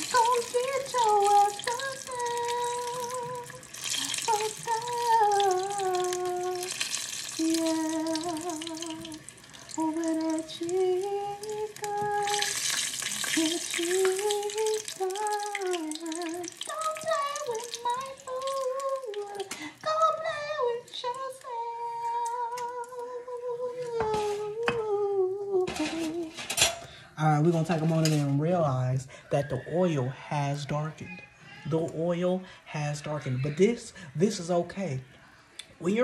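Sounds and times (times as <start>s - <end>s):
person humming a tune: 0.0s - 6.8s, 7.4s - 12.6s, 13.3s - 26.4s
chicken frying in hot oil: 0.0s - 19.6s.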